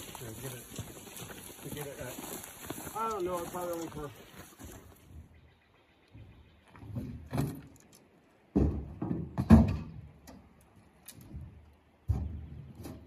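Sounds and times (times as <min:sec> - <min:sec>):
dull thumps and knocks: 0:08.5 - 0:10.0.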